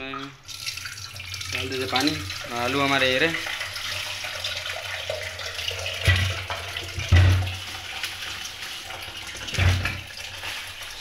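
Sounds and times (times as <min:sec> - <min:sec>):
tap water running into pot: 0:00.0 - 0:11.0
plastic bag rustling: 0:09.7 - 0:11.0.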